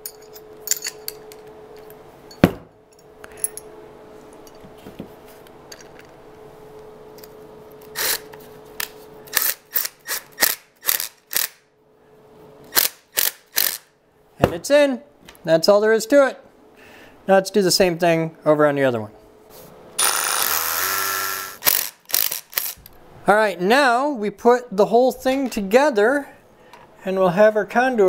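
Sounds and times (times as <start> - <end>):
steady hum: 16.4 - 28.0
cordless driver bursts: 20.0 - 22.9.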